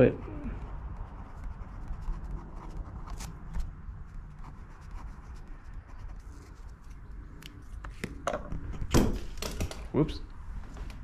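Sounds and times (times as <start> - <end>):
pen scratching on paper: 0.6 - 7.0.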